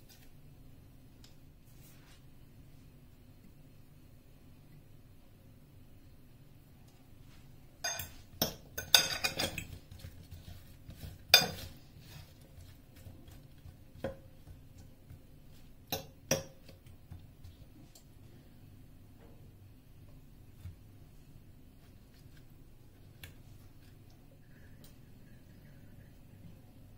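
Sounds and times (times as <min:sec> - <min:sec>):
metal utensil clinking on glass bowl: 0:07.8 - 0:09.8.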